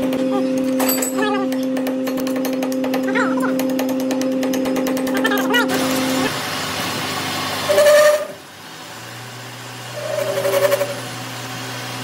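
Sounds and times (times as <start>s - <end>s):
lathe humming: 5.6s - 12.0s
lathe tool cutting pipe with whine: 5.8s - 12.0s.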